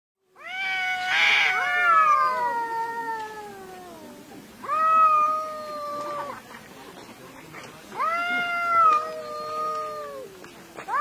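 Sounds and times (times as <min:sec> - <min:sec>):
cats yowling: 0:00.4 - 0:06.4, 0:07.9 - 0:10.3
cat hissing: 0:00.5 - 0:06.4.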